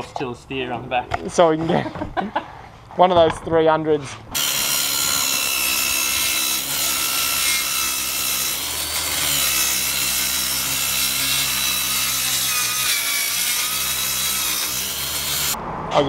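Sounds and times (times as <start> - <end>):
power saw cutting wood: 4.4 - 15.6.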